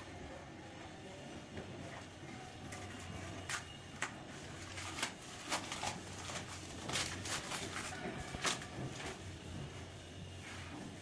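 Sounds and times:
packing wrap crinkling: 4.6 - 8.7.

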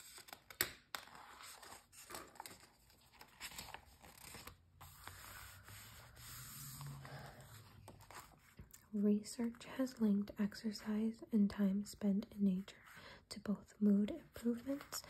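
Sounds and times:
magazine page turning: 0.0 - 8.6
hands rubbing page: 4.1 - 8.6.

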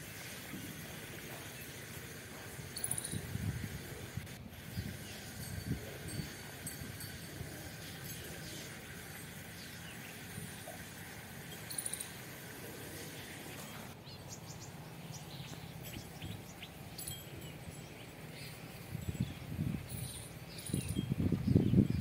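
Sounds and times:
steady background hiss: 0.0 - 21.5.

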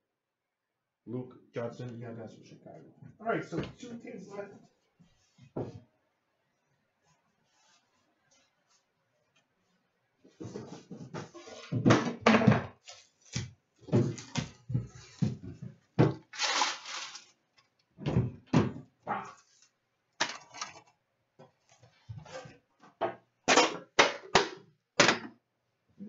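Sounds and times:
boxes knocking on glass counter: 13.9 - 16.3.

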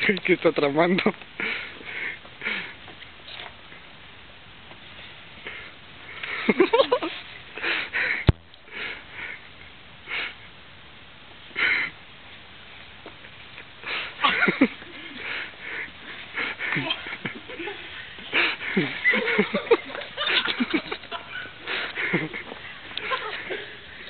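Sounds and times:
person snickering: 6.2 - 8.3, 14.2 - 23.8.

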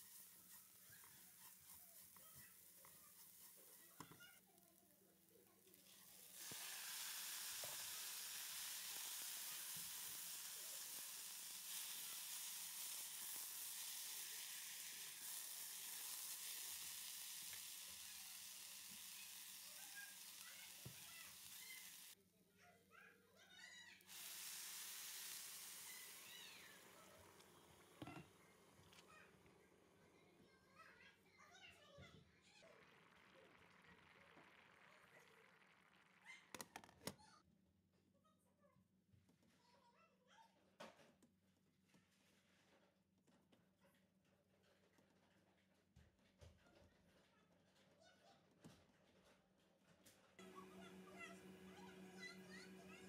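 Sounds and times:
food sizzling in oil: 0.0 - 22.2, 24.0 - 28.2.

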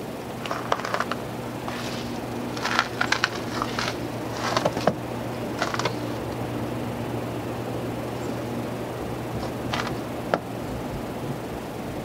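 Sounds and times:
steady low hum: 0.0 - 12.0
footsteps crunching in snow: 0.5 - 6.5.

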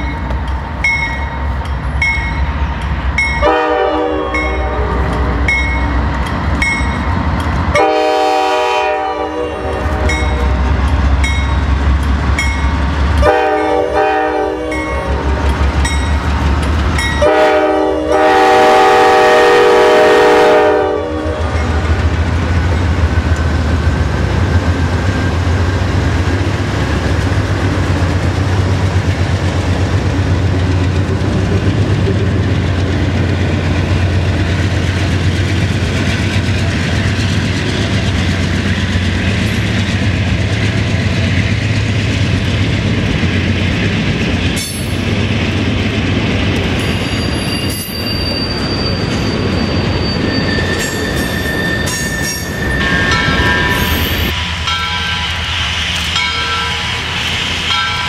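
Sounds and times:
diesel locomotive rumble: 0.0 - 58.0
wheel squeals: 46.7 - 54.3.

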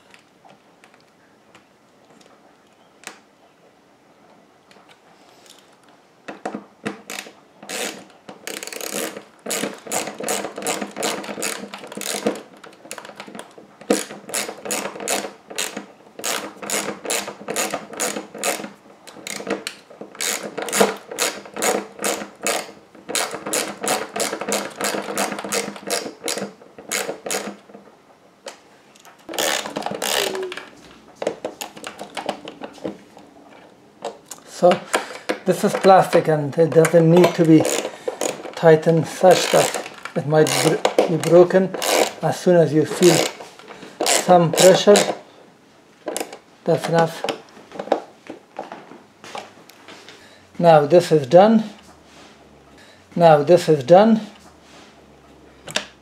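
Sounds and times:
ratcheting screwdriver clicking: 7.1 - 27.6, 29.3 - 30.3, 36.8 - 38.6, 39.4 - 42.2, 44.0 - 45.2.

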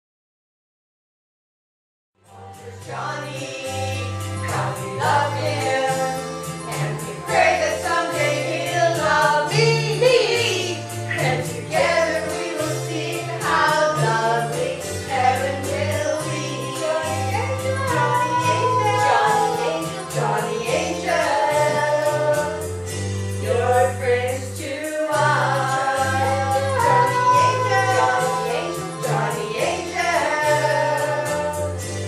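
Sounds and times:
women singing together: 2.6 - 32.0
steady percussive beat: 4.0 - 23.8, 24.4 - 32.0.

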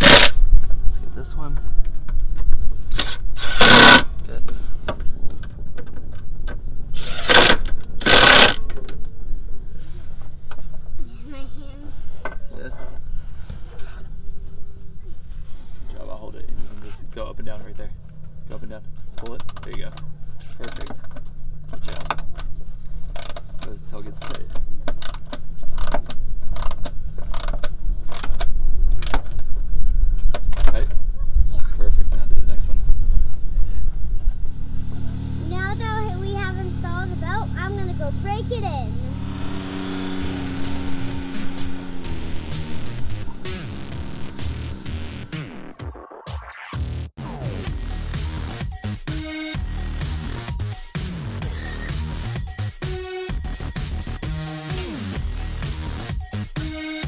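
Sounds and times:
cordless drill driving screws: 0.0 - 0.4, 2.9 - 4.1, 7.0 - 8.6
ratchet wrench clicking: 0.0 - 0.4, 2.9 - 4.1, 7.0 - 8.6, 20.6 - 20.9, 21.8 - 22.2, 23.1 - 23.4, 24.2 - 24.4, 25.0 - 28.4
steady low rumble: 26.2 - 45.7.

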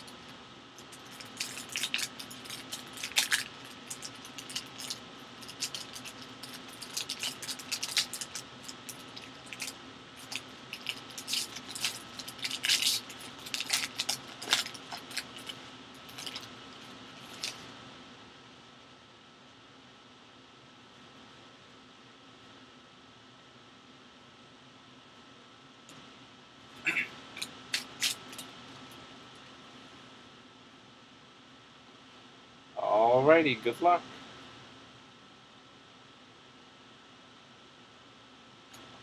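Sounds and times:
foil pack crinkling: 0.8 - 16.5, 17.2 - 17.7, 27.4 - 28.5.

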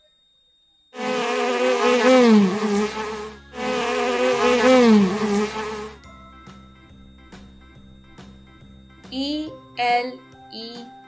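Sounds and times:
bee buzzing: 1.0 - 6.0.

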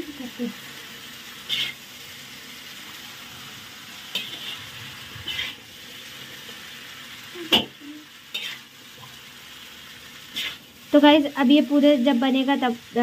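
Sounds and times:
noodles sizzling in a wok: 0.0 - 13.0
utensil scraping a wok: 1.3 - 1.9, 3.1 - 8.9, 10.0 - 10.8.

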